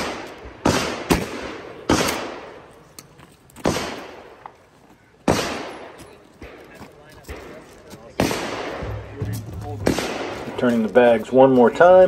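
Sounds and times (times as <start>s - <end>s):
shotgun shots echoing: 0.0s - 2.7s, 3.6s - 4.4s, 5.2s - 10.8s.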